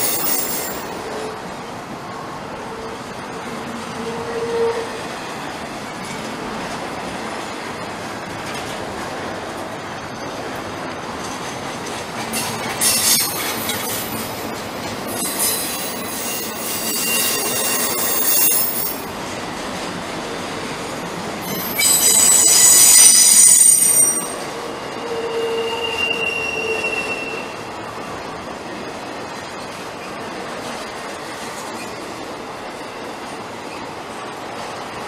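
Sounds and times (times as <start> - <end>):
train cars rumbling: 0.0 - 35.0
high-pitched wheel squeal: 15.2 - 19.0, 21.5 - 27.6.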